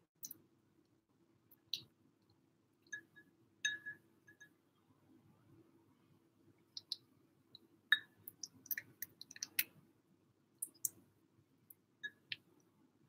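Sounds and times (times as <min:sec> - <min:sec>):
spoon tapping ceramic bowl: 0:02.9 - 0:04.5
kitten eating: 0:08.0 - 0:09.8.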